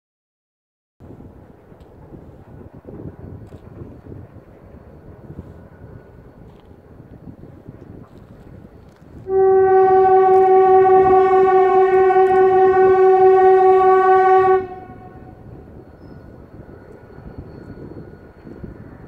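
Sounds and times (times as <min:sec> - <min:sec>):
locomotive air horn blast: 0:09.2 - 0:15.4.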